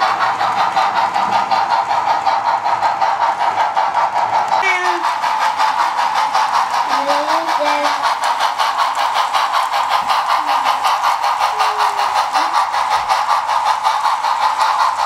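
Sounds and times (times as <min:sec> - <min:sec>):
model steam locomotive chuffing: 0:00.0 - 0:15.0
steady steam hiss: 0:00.0 - 0:15.0.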